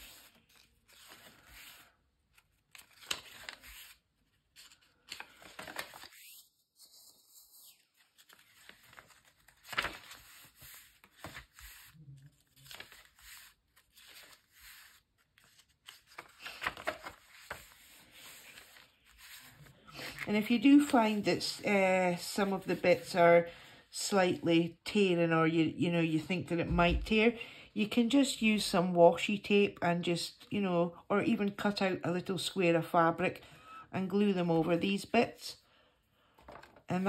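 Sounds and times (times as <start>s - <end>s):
paper pages turning: 0.0s - 23.2s, 36.4s - 36.9s.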